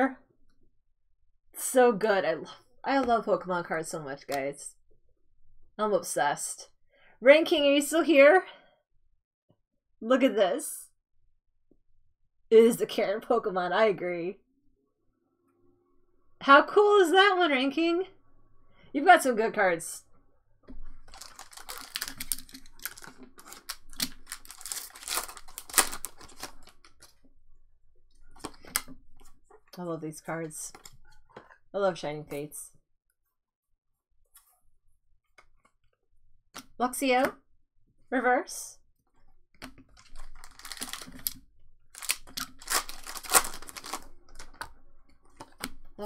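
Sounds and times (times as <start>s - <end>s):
foil wrapper crinkling and tearing: 21.0s - 27.1s, 40.0s - 44.6s
cards being shuffled: 21.1s - 27.0s, 40.2s - 41.4s, 42.0s - 44.7s.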